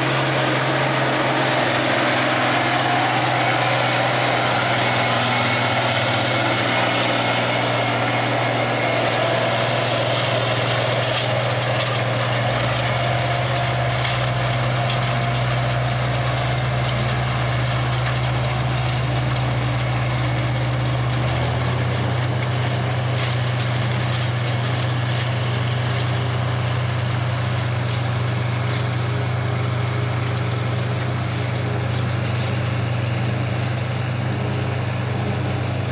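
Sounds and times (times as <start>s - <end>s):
tractor diesel engine running: 0.0s - 35.9s.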